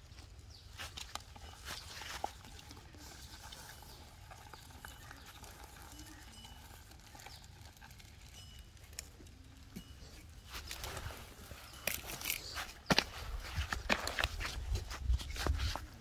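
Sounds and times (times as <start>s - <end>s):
handling rustle: 6.7s - 16.0s.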